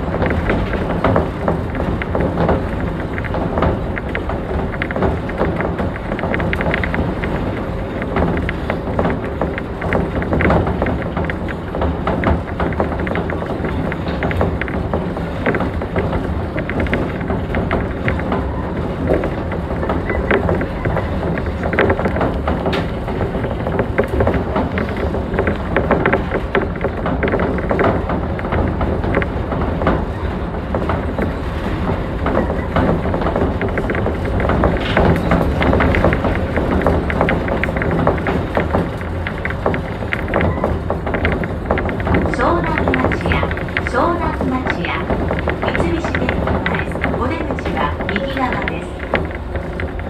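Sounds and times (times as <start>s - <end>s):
monorail car rumbling: 0.0s - 50.0s
small clicks and rattles: 0.0s - 50.0s.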